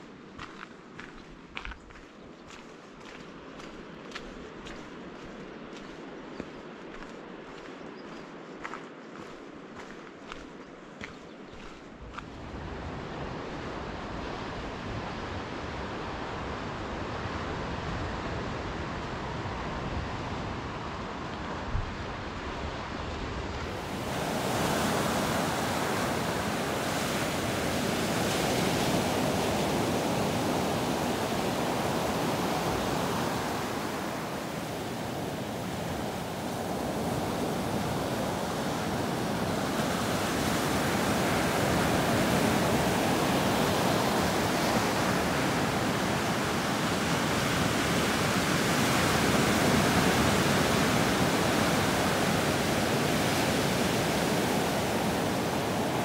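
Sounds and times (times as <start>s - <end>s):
surf breaking on a beach: 12.4s - 56.0s.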